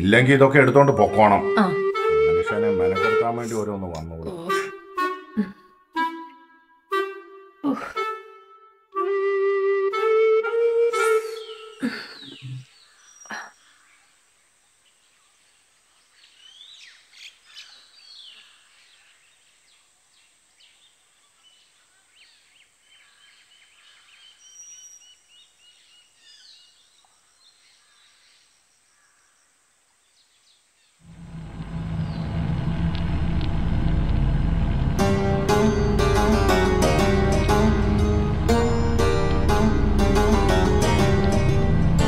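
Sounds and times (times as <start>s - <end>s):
background music: 0.0s - 12.0s, 34.6s - 42.0s
birds chirping and trilling: 11.0s - 31.0s, 31.9s - 32.5s.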